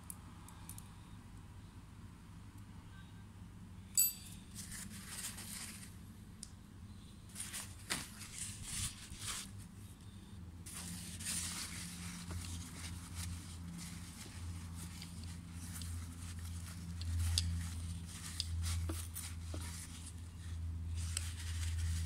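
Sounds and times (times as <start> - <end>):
metallic clink of steel parts: 4.0 - 4.7
paper rustling and crinkling: 4.5 - 6.0, 7.3 - 9.8, 10.7 - 22.0.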